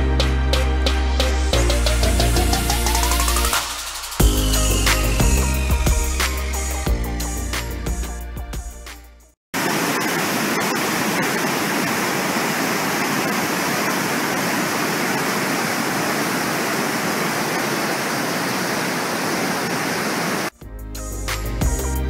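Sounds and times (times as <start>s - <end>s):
river rushing over a weir: 9.6s - 20.5s.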